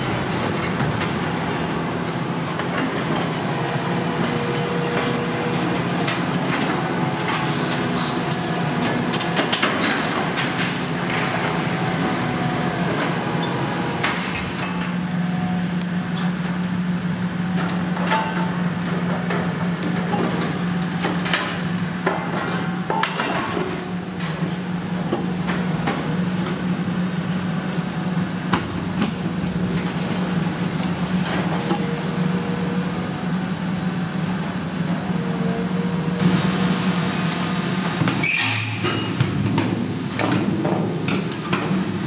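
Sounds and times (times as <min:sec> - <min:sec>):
excavator diesel engine running: 0:00.0 - 0:42.0
metal squeals: 0:38.2 - 0:39.0.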